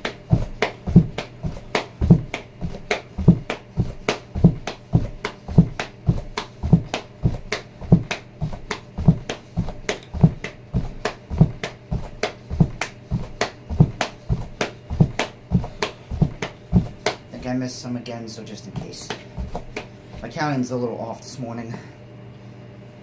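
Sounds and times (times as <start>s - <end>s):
bare feet thudding on foam mat: 0.0s - 17.6s, 18.8s - 20.3s.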